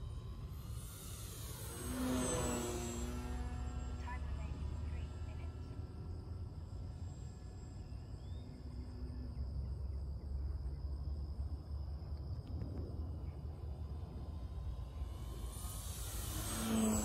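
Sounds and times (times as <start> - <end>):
insects trilling: 0.0 - 17.0.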